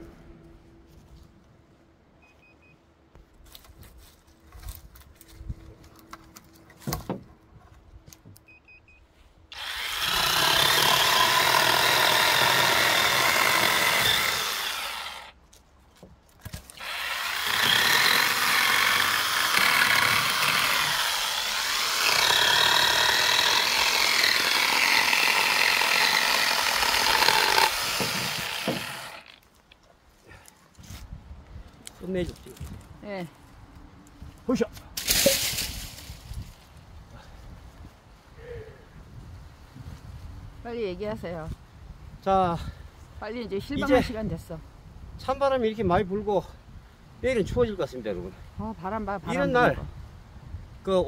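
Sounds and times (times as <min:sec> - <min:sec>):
chainsaw cutting branches: 0:09.5 - 0:15.4, 0:16.6 - 0:29.4.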